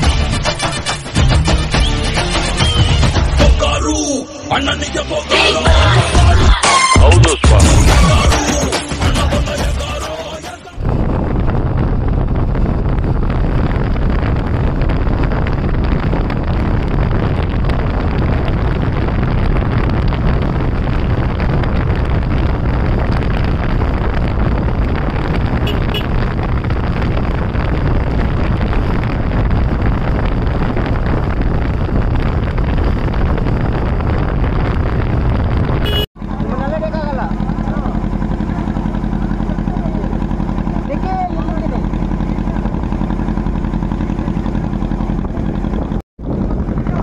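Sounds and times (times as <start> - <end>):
wind buffeting microphone: 10.8 - 36.1, 41.4 - 47.0.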